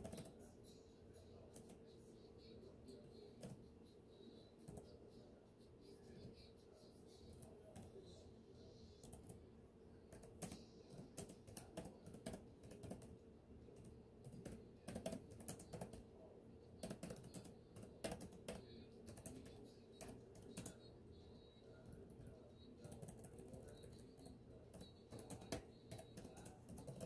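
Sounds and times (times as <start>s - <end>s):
typing on computer keyboard: 0.0s - 0.4s, 2.9s - 3.7s, 9.0s - 9.4s, 10.1s - 16.1s, 16.8s - 20.9s, 21.8s - 27.0s.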